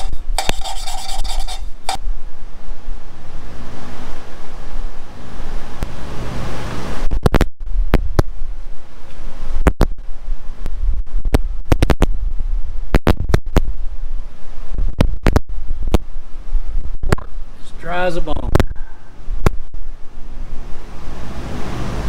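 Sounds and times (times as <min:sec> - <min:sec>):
scratchy rubbing: 0:00.0 - 0:02.0
shop fan humming: 0:00.0 - 0:22.0.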